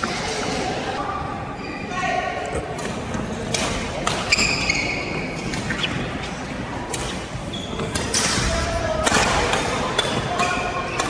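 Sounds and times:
rackets hitting shuttlecock: 2.8s - 11.0s
shoes squeaking on court: 4.1s - 8.2s.

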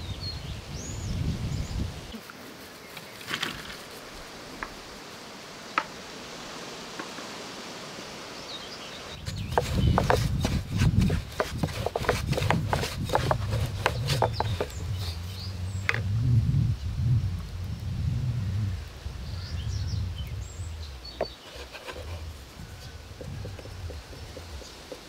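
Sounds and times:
rolling pin on wooden board: 9.2s - 15.2s, 21.2s - 22.3s, 23.2s - 25.0s.

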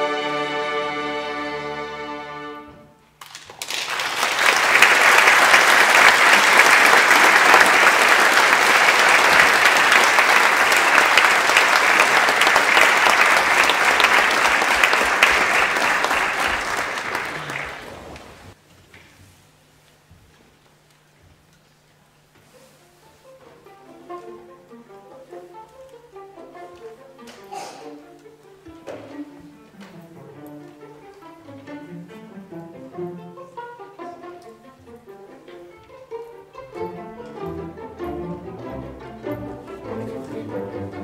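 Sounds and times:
string orchestra with harp chord: 0.0s - 2.9s, 29.4s - 41.0s.

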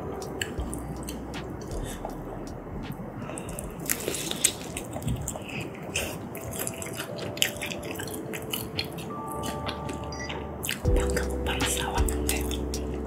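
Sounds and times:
wet chewing: 3.2s - 12.9s.

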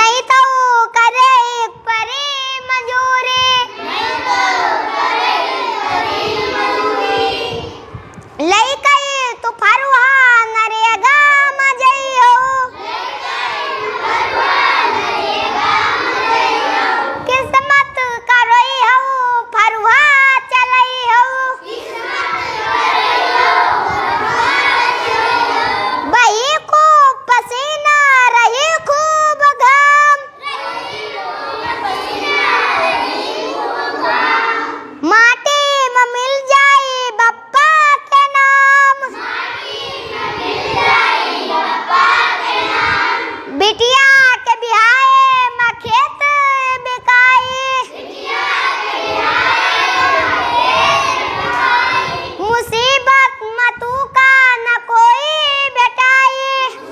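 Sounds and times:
children singing in chorus: 3.0s - 8.0s, 12.2s - 17.4s, 21.4s - 26.2s, 30.3s - 35.1s, 38.9s - 43.6s, 47.3s - 52.8s, 56.7s - 56.9s.

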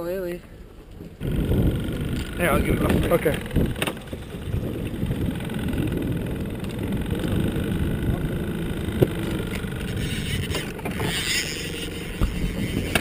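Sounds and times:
boat motor rumbling: 0.0s - 13.0s.

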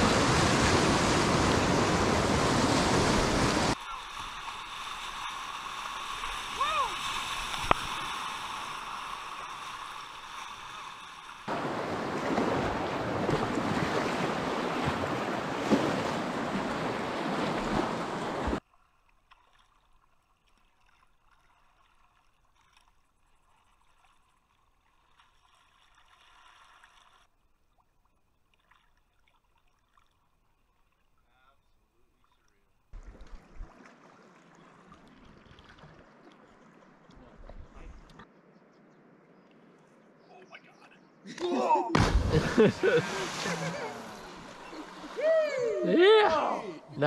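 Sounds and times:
rushing river water splashing: 0.0s - 27.3s, 32.9s - 37.4s, 41.9s - 46.6s.

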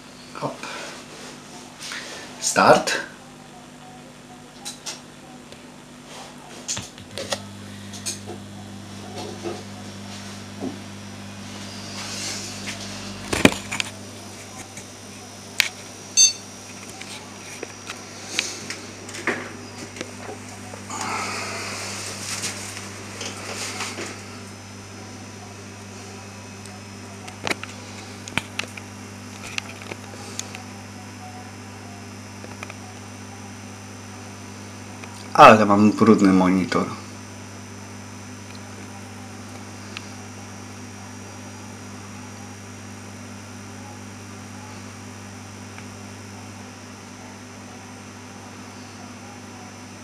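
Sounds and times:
computer hum: 0.0s - 50.0s.

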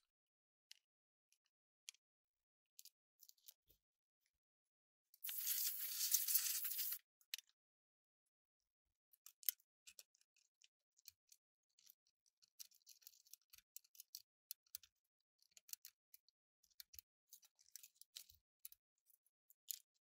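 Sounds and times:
wiring rustling: 5.2s - 7.0s
small clicks of connectors: 9.2s - 20.0s.

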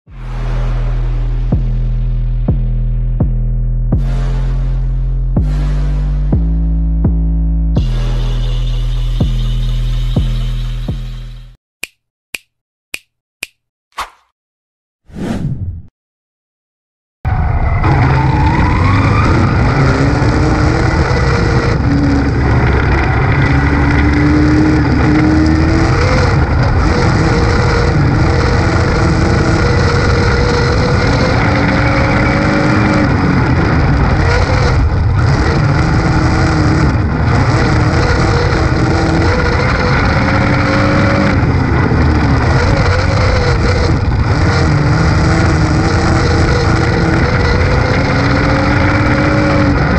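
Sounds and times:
race car engine running: 17.6s - 49.9s.

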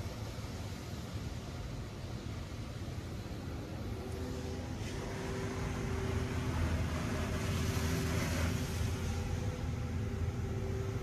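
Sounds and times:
low even hum: 0.0s - 11.0s
water spray hissing on car: 0.0s - 11.0s.

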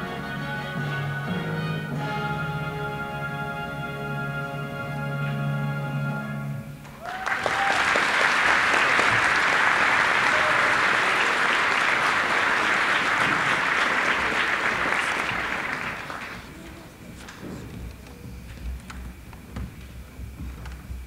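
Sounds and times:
audience applauding: 6.9s - 17.0s.

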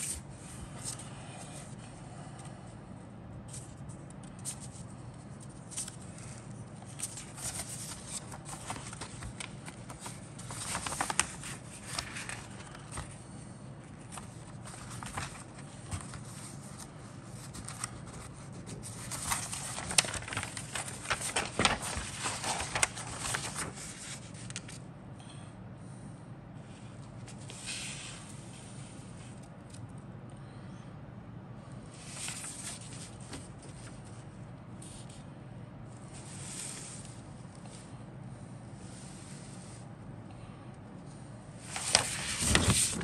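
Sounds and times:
paper crinkling and rustling: 3.5s - 24.8s, 32.0s - 35.2s, 41.6s - 43.0s.

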